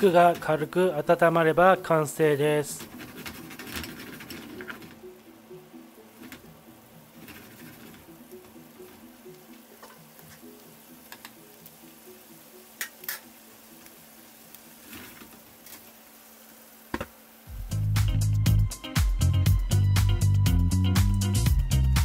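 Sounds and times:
soft background music: 0.0 - 16.1, 17.4 - 22.0
sauce sizzling in a frying pan: 0.0 - 21.9
spatula scraping against pan: 2.8 - 4.9.

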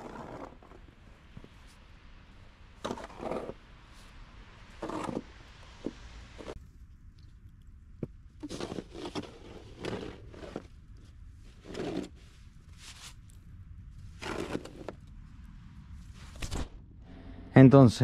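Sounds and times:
snow shovel scraping pavement: 0.0 - 0.8, 2.8 - 3.6, 4.8 - 6.6, 8.4 - 10.7, 11.5 - 12.2, 14.2 - 15.0.

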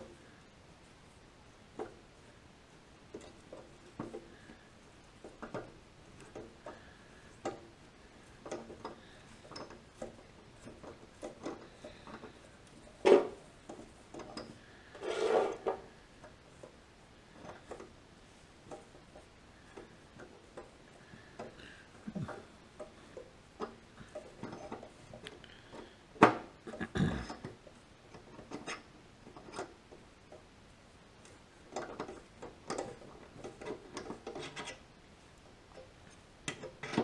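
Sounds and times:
metallic scraping rasp: 14.2 - 15.9.

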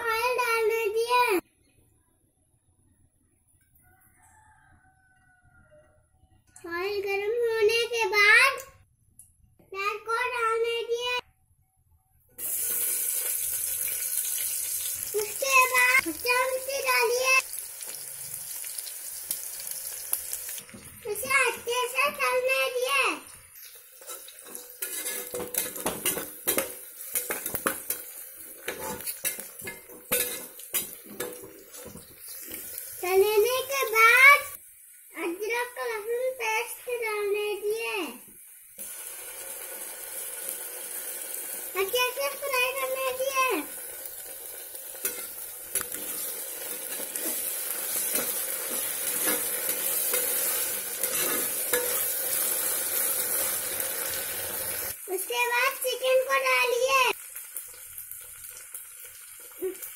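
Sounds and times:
onions sizzling in oil: 12.4 - 59.9
metal spoon scraping a pot: 24.0 - 32.8, 45.0 - 53.6.

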